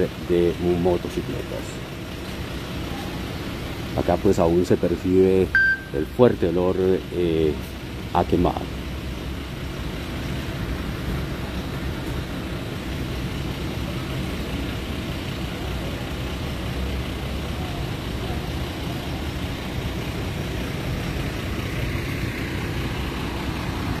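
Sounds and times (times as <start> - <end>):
street traffic rumble: 0.0 - 24.0.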